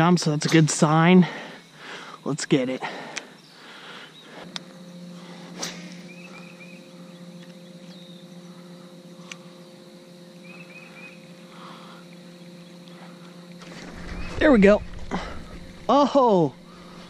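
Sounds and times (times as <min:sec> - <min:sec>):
electric motor humming: 0:00.7 - 0:17.0
bird chirping: 0:06.0 - 0:11.4.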